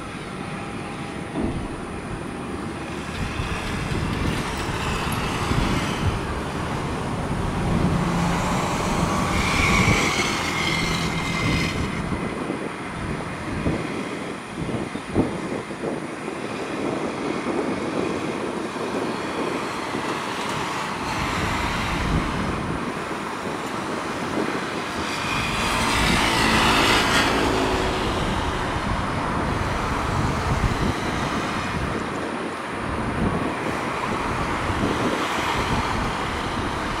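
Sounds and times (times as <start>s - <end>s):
distant aircraft and ground vehicles: 0.0s - 37.0s.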